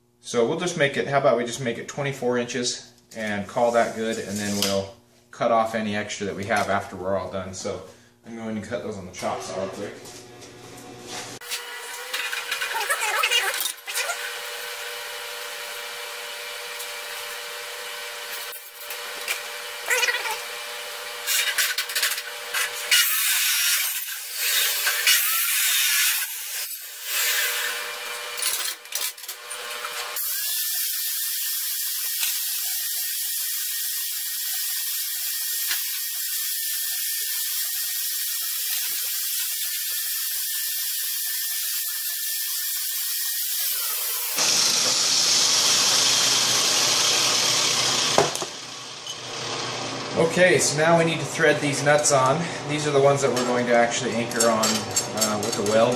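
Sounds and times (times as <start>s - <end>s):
power tool hiss with high whine: 19.5s - 28.5s, 29.6s - 49.6s.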